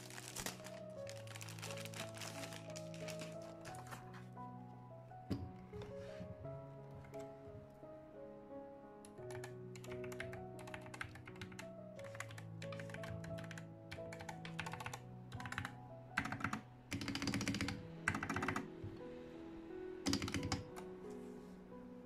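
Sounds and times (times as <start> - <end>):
mechanical keyboard typing: 9.1 - 18.7, 20.0 - 20.9.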